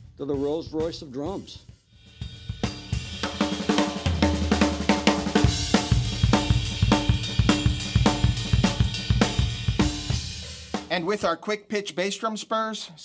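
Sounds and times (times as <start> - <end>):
drum kit groove: 0.0 - 11.5
deep drum boom: 2.9 - 10.9.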